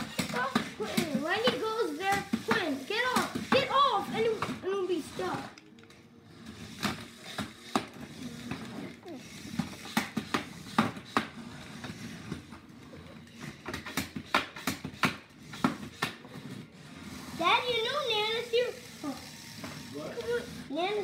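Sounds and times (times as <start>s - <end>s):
plastic clicks of toy robots: 5.3s - 6.0s.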